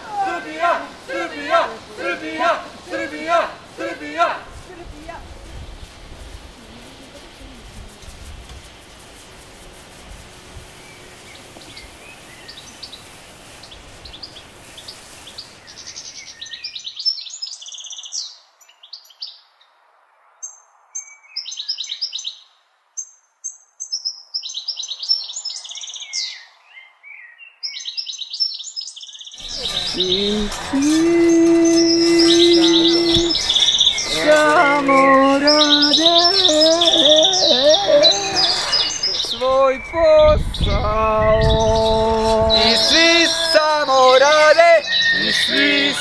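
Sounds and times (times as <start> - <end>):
background hiss: 0.0 - 19.2, 28.7 - 46.0
small birds chirping: 10.7 - 19.5, 21.0 - 46.0.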